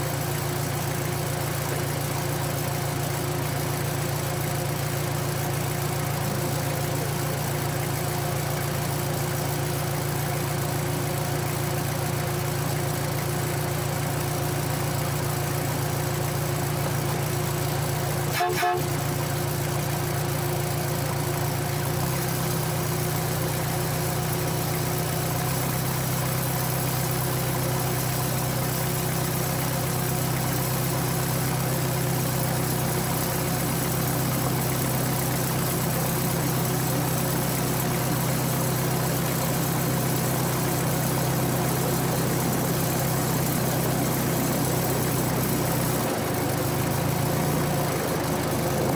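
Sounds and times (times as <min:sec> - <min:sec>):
locomotive engine running: 0:00.0 - 0:48.9
horn toot: 0:18.3 - 0:19.0.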